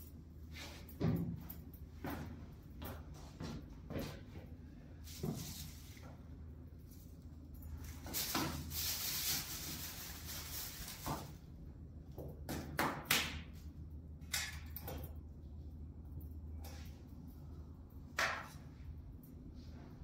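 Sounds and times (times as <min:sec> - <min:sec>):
low steady hum: 0:00.0 - 0:20.0
plastic bag rustling: 0:07.8 - 0:11.4.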